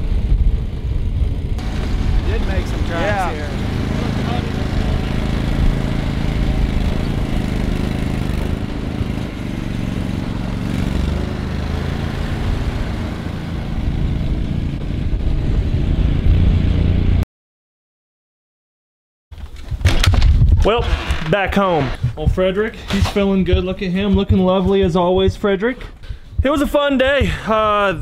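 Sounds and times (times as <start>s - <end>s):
vehicle engine running: 0.0s - 17.2s, 21.6s - 27.9s.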